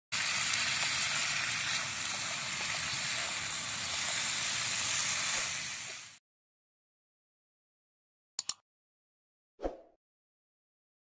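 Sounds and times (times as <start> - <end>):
food sizzling in a wok: 0.1 - 6.2.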